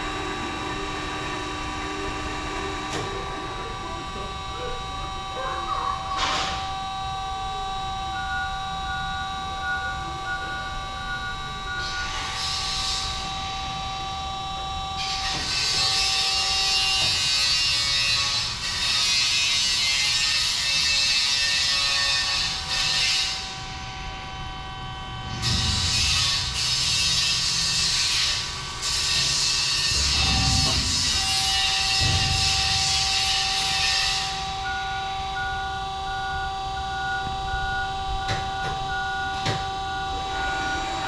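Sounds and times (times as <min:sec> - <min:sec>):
band saw whining: 0:24.9 - 0:41.0.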